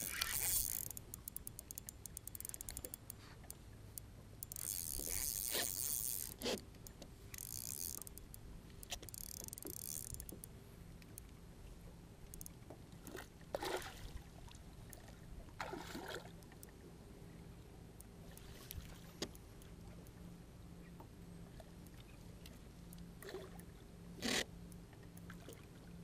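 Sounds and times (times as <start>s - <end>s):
water splashing: 0.0s - 1.2s
boat motor humming: 0.0s - 13.1s.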